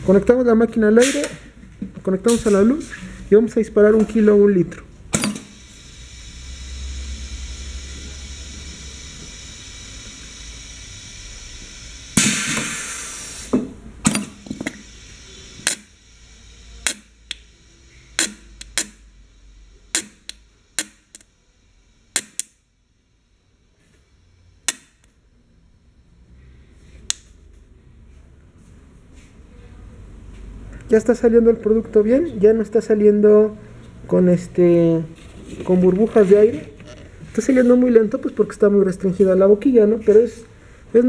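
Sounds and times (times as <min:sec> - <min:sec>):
filling machine hissing and humming: 0:05.2 - 0:27.2
loud rush of air: 0:09.9 - 0:13.6
sharp irregular pops: 0:18.2 - 0:19.0, 0:19.9 - 0:21.3, 0:22.1 - 0:22.6.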